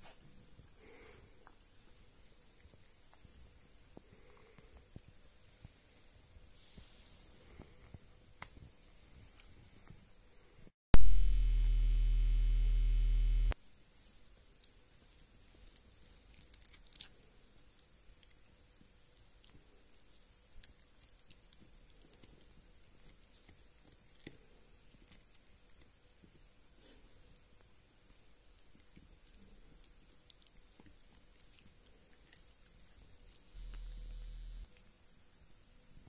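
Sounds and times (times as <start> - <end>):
loud low buzz: 10.9 - 13.6, 33.6 - 34.7
dog gnawing chew stick: 14.2 - 27.5, 28.6 - 34.9.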